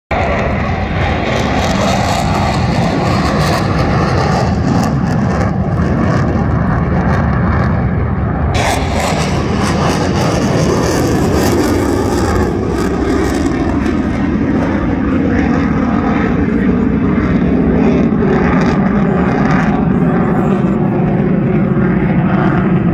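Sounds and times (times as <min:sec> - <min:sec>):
jet aircraft flying over: 0:00.1 - 0:22.9
low-passing jet hiss: 0:08.6 - 0:15.1.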